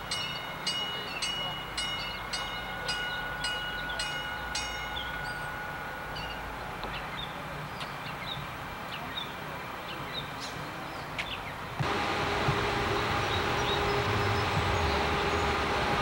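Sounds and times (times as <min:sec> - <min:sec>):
bell dinging: 0:00.0 - 0:07.5
steady high whine: 0:00.0 - 0:10.1, 0:11.8 - 0:16.0
light rail train rumbling past: 0:00.0 - 0:16.0.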